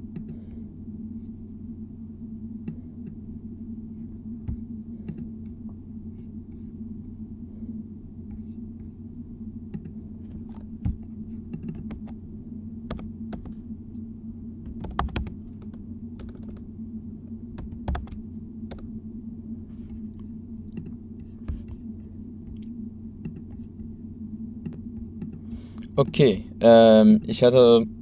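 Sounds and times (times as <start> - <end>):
steady low hum: 0.0 - 28.0
keyboard keystrokes: 14.7 - 16.6.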